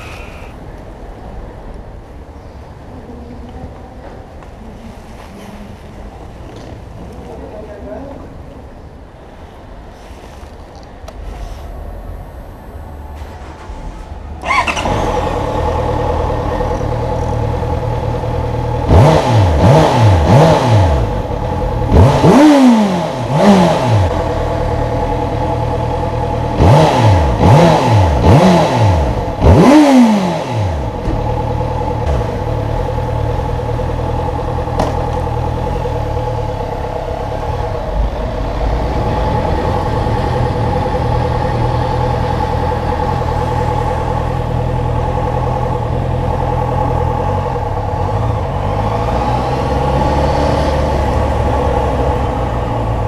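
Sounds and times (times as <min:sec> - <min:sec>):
motorcycle engine starting and idling: 0:10.4 - 0:53.0
motorcycle engine revving: 0:14.4 - 0:53.0.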